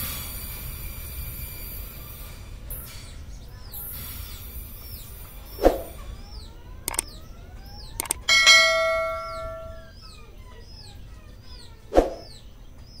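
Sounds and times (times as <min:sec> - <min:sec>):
birds chirping: 0:04.8 - 0:13.0
mouse double click: 0:06.9 - 0:07.1, 0:08.0 - 0:08.3
bright bell ding: 0:08.2 - 0:09.9.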